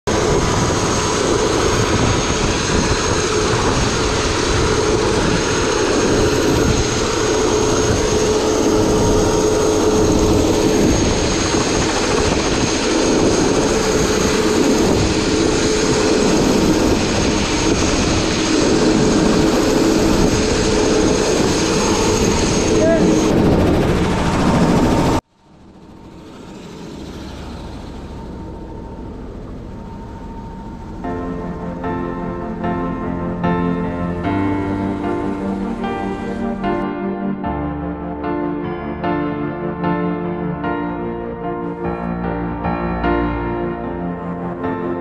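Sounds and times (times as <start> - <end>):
helicopter engine drone and whine: 0.1 - 45.0.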